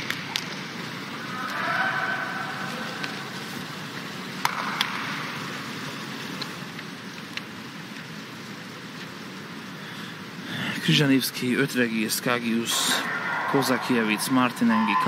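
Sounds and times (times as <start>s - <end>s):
indoor swimming pool ambience: 0.0s - 15.0s.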